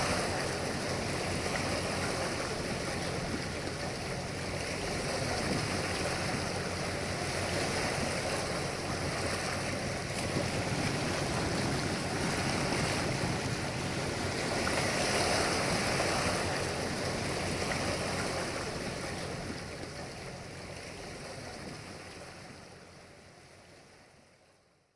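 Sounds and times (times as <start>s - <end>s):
wind noise: 0.0s - 19.8s
faint diesel engine drone: 0.0s - 24.3s
lake water washing: 0.0s - 24.6s.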